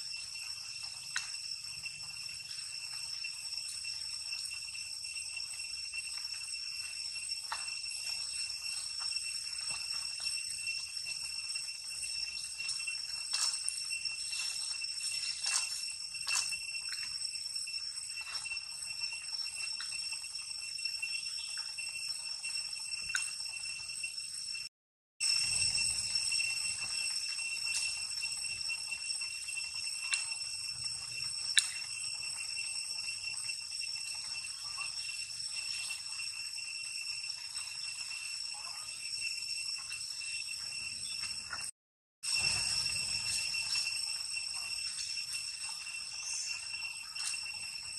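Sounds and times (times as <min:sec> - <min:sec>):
insects droning: 0:00.0 - 0:47.9.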